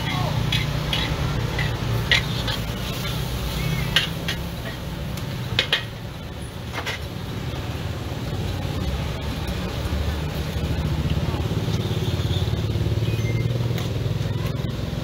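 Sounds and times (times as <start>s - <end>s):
metal spatula clanging on wok: 0.0s - 4.9s, 5.5s - 6.0s
food stir-frying: 0.0s - 15.0s.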